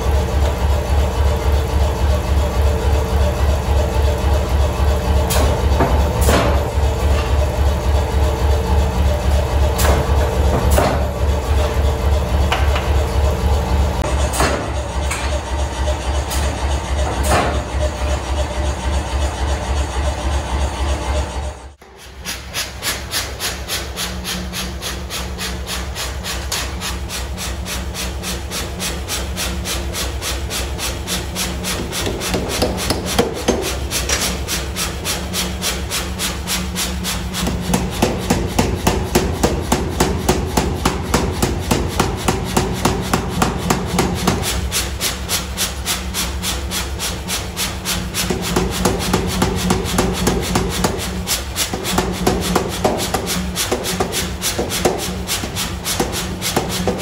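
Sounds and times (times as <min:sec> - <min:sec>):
power hammer pounding steel: 0:00.0 - 0:21.2, 0:21.8 - 0:57.0
low motor hum: 0:00.0 - 0:21.8.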